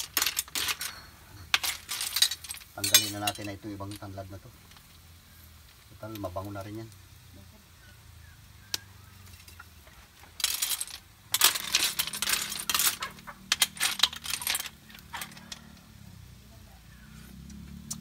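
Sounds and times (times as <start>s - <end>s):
shells clinking in a metal wok: 0.0s - 4.1s, 10.4s - 15.8s.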